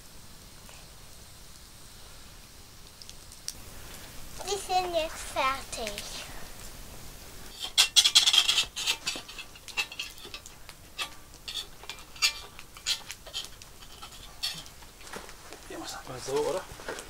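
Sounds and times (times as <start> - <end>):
metal utensil scraping cast iron pot: 7.5 - 15.1.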